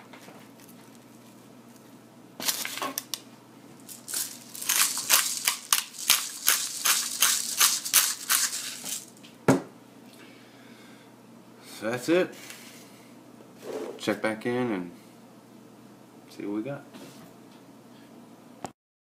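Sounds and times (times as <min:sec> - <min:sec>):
pepper grinder grinding: 0:03.8 - 0:09.2.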